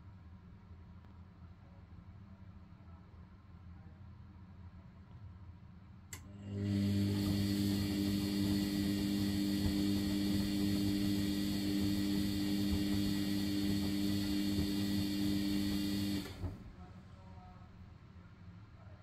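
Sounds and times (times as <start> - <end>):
washing machine motor hum: 6.2 - 16.9.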